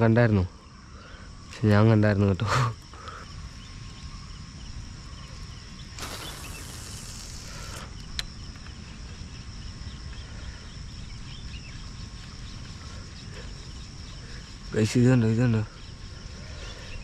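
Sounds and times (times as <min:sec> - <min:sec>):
insects chirring: 0:00.0 - 0:17.0
fishing line hissing off reel: 0:05.9 - 0:08.3.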